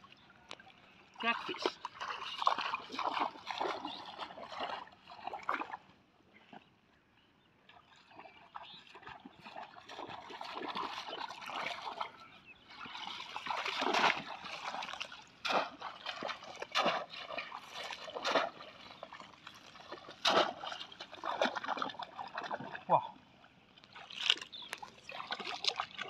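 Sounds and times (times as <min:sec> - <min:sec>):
muddy water splashing and sloshing: 0:00.0 - 0:26.0
sharp loud splashes: 0:12.9 - 0:18.7, 0:19.9 - 0:22.7.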